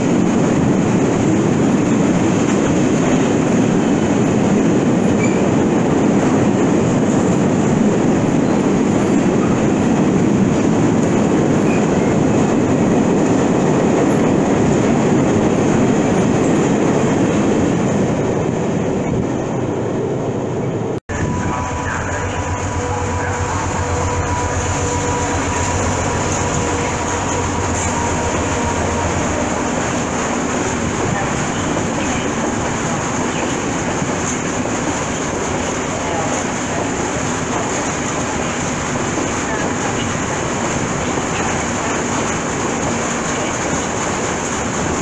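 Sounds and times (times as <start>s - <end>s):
freight train rolling past: 0.0s - 45.0s
high whine: 21.1s - 29.8s.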